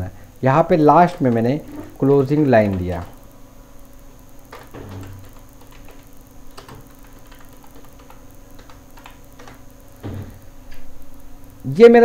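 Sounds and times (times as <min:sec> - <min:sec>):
keyboard keys clicking: 0:01.1 - 0:03.2, 0:04.5 - 0:10.2.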